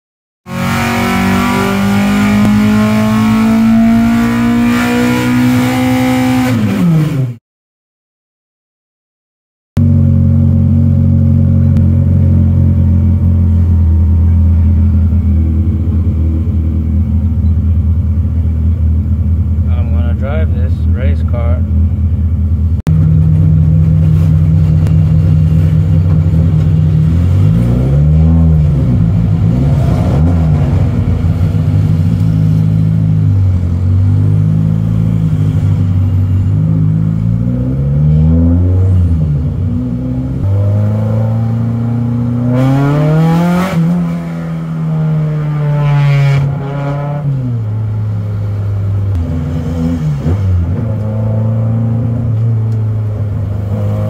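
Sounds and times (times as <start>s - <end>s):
car engine revving: 0.5s - 7.4s, 9.8s - 54.0s.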